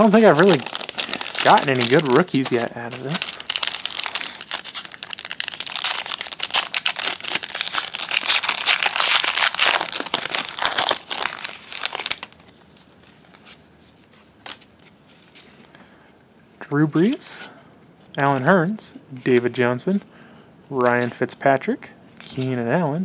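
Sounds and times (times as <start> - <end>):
foil wrapper crinkling and tearing: 0.0 - 13.3.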